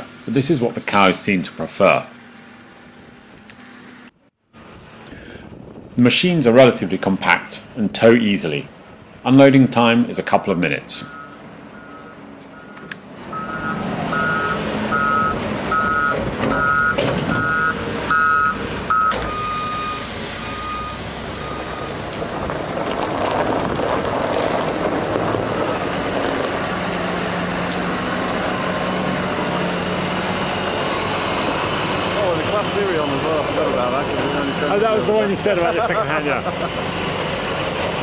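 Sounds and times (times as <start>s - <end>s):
diesel engine running: 0.0s - 6.0s, 6.6s - 38.0s
reversing alarm beeping: 11.0s - 22.0s.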